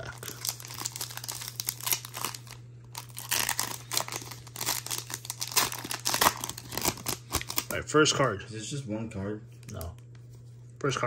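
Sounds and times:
wrapper tearing and crinkling: 0:00.0 - 0:07.8.

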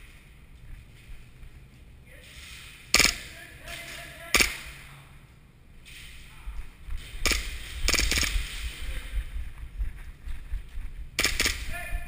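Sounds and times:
airsoft pistol shots: 0:02.9 - 0:03.3, 0:04.3 - 0:04.7, 0:07.2 - 0:08.7, 0:11.2 - 0:11.7.

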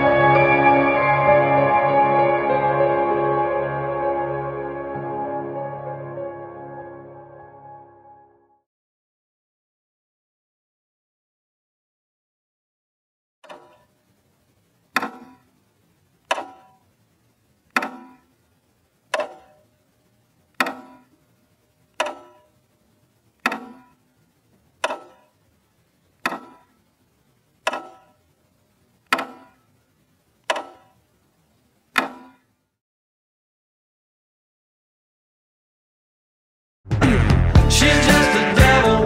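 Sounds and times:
clock-like ticking: 0:14.9 - 0:15.6, 0:16.2 - 0:16.9, 0:17.6 - 0:18.4, 0:19.0 - 0:19.7, 0:20.5 - 0:24.1, 0:24.7 - 0:28.3, 0:29.0 - 0:29.8, 0:30.4 - 0:31.0.

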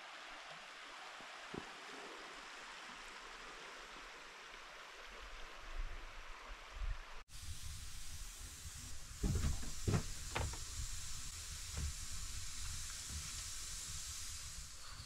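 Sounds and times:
camp stove hiss: 0:07.2 - 0:15.0.

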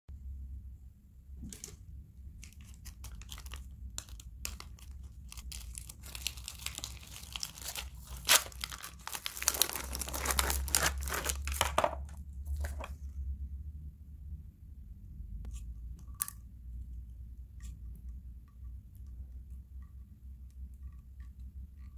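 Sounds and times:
packet being torn open: 0:02.4 - 0:12.9
plastic crinkling: 0:02.4 - 0:12.9.

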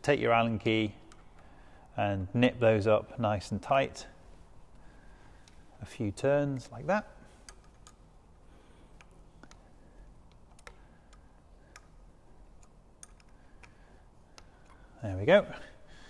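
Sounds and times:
allen key clicking: 0:10.2 - 0:14.9.

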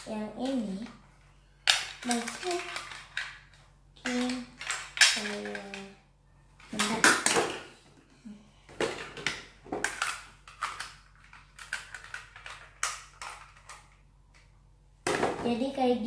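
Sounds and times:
plastic toy parts clacking: 0:01.6 - 0:05.9, 0:06.6 - 0:07.6, 0:08.8 - 0:14.4.

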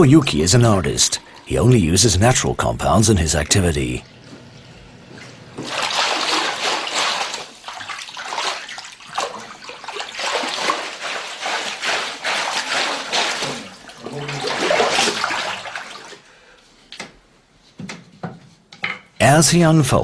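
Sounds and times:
water sloshing and splashing: 0:04.0 - 0:16.3.

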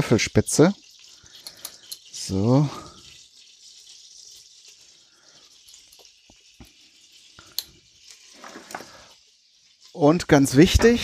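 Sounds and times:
kitchen utensils clicking: 0:00.0 - 0:03.0, 0:09.9 - 0:11.0
butter sizzling in a pot: 0:00.0 - 0:11.0.

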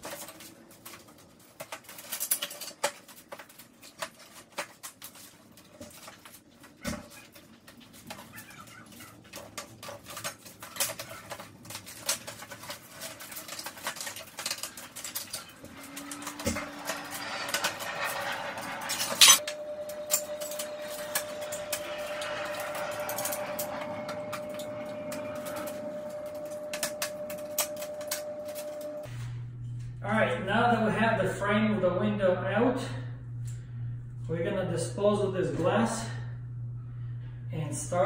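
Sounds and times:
faint steady hum: 0:09.2 - 0:38.0.

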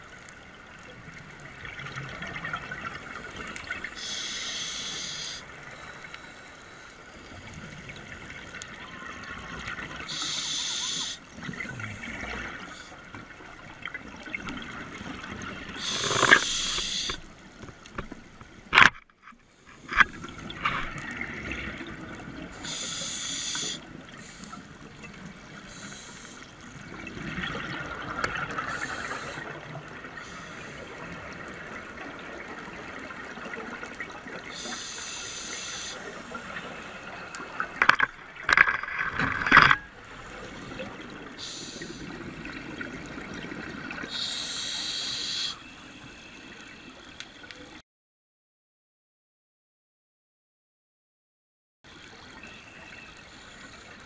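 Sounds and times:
diver breathing through regulator: 0:04.0 - 0:05.4, 0:10.1 - 0:11.2, 0:15.8 - 0:17.2, 0:28.6 - 0:29.5, 0:44.1 - 0:46.2
bubbles hissing: 0:14.6 - 0:17.2, 0:25.4 - 0:32.0, 0:40.2 - 0:45.6.

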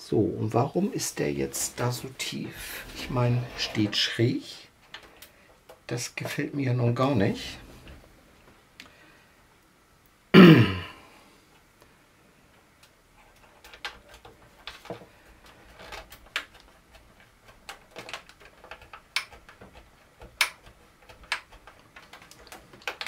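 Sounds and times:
plastic parts clicking and tapping: 0:12.8 - 0:23.0.

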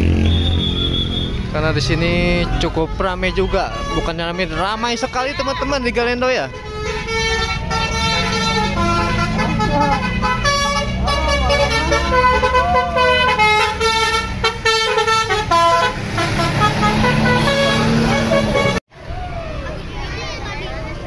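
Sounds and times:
bus engine rumble: 0:00.0 - 0:21.0
bus horn playing a tune: 0:02.2 - 0:18.8.

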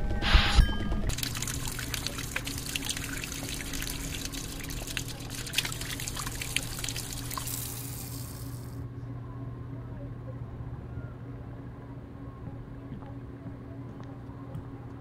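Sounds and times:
faucet water running into mug: 0:01.1 - 0:08.8
small water drips: 0:01.1 - 0:08.8.

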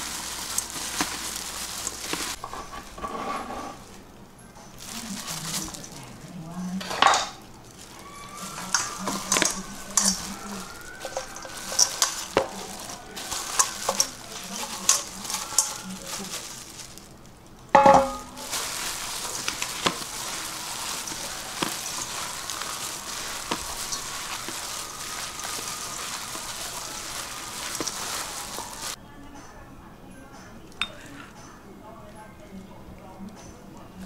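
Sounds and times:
food being tossed in a bowl: 0:00.0 - 0:02.7, 0:07.6 - 0:17.2, 0:17.8 - 0:29.0.

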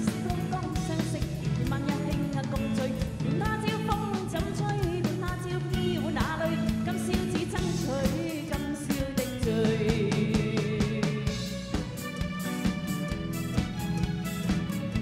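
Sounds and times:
woman singing into a microphone: 0:00.0 - 0:11.6
drum kit beat: 0:00.0 - 0:15.0
electric guitar: 0:00.0 - 0:15.0
keyboards: 0:00.0 - 0:15.0.

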